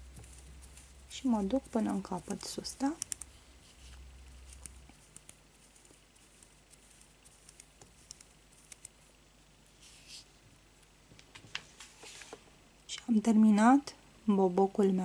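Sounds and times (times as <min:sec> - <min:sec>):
fingers wrapping thread: 0:00.0 - 0:10.3.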